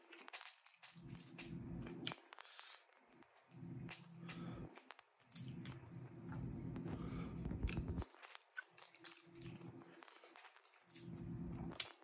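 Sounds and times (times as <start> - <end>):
person chewing wetly: 0.0 - 2.8, 5.3 - 12.0.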